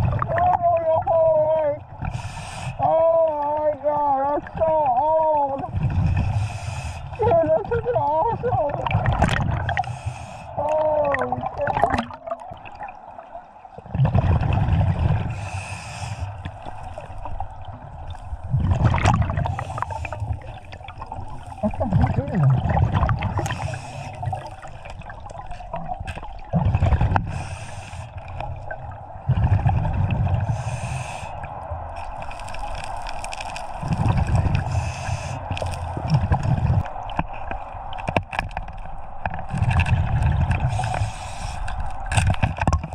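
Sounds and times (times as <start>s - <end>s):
exhaled bubbles rumbling underwater: 0.0s - 42.9s
regulator inhalation hiss: 2.1s - 2.8s, 6.2s - 7.2s, 9.7s - 10.6s, 15.3s - 17.1s, 23.4s - 24.4s, 27.3s - 28.2s, 30.4s - 31.5s, 34.6s - 35.7s, 40.7s - 41.8s.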